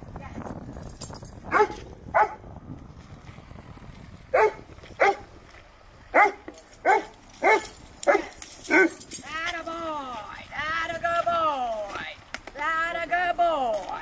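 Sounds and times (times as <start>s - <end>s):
dog barking: 1.5s - 2.4s, 4.3s - 5.2s, 6.1s - 9.0s.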